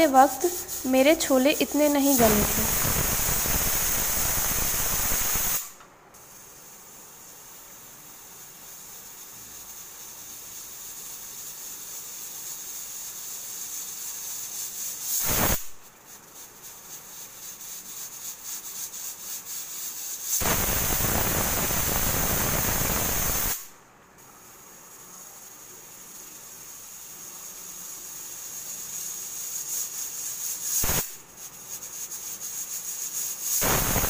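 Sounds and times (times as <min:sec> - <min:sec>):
pressure cooker hissing: 0:00.0 - 0:34.0
pressure cooker whistle: 0:02.2 - 0:05.8, 0:15.2 - 0:15.7, 0:20.4 - 0:23.7, 0:33.6 - 0:34.0.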